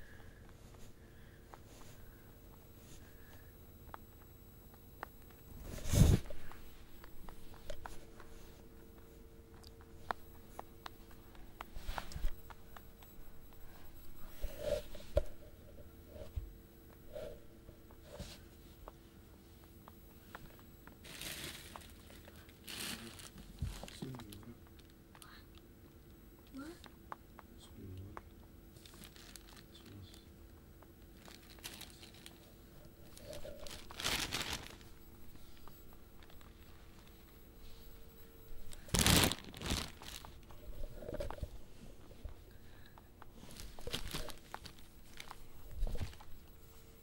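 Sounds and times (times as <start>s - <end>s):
rabbit nibbling seeds: 0.4s - 25.4s, 26.0s - 47.0s
plastic bag crinkling: 20.9s - 24.9s, 28.8s - 30.2s, 31.1s - 37.1s, 38.5s - 41.5s, 43.4s - 46.5s.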